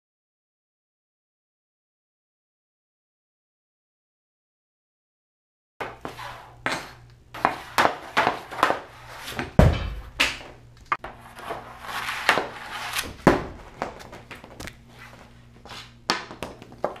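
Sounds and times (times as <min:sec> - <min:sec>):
hockey stick scraping plastic pad: 0:05.8 - 0:09.6, 0:10.4 - 0:17.0
stick clacking against puck: 0:06.7 - 0:09.4, 0:10.2 - 0:14.8
heavy thuds: 0:09.4 - 0:10.5.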